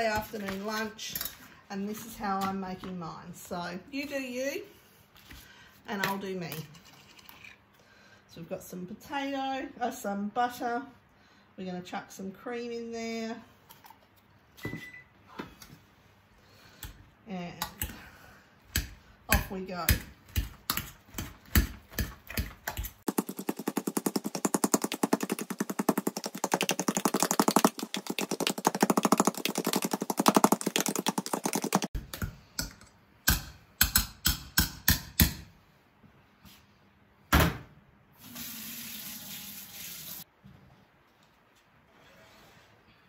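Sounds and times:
potato masher pounding in saucepan: 18.7s - 32.3s.

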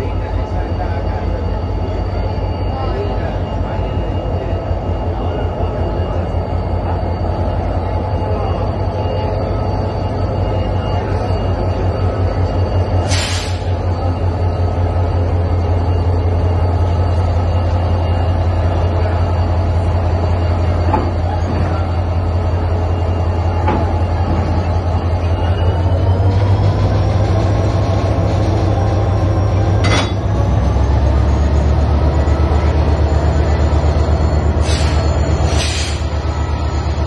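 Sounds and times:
diesel locomotive engine droning: 0.0s - 37.0s.

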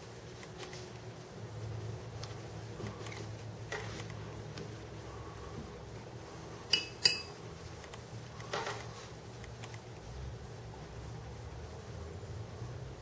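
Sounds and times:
low steady hum: 0.0s - 13.0s
paintbrush clinking on glass jar: 6.7s - 7.4s.

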